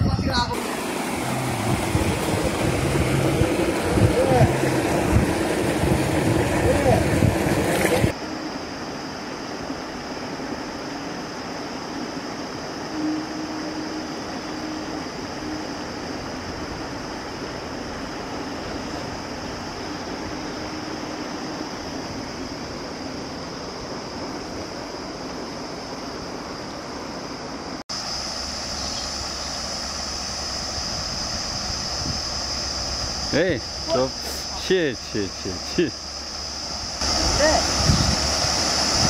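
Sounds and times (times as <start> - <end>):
high insect drone: 0.1 - 39.0
water rushing over weir: 0.4 - 25.0, 27.9 - 39.0
water pouring into a pond: 0.6 - 8.2
faint high tone: 12.9 - 16.1.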